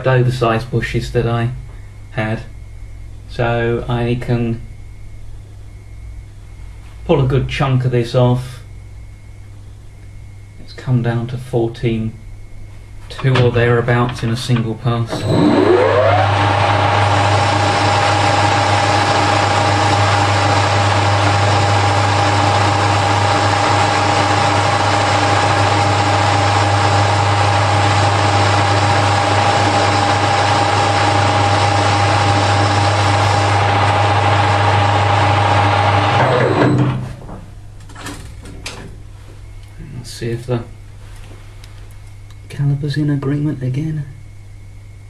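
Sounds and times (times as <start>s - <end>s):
lathe whining and spinning down: 15.1s - 37.1s.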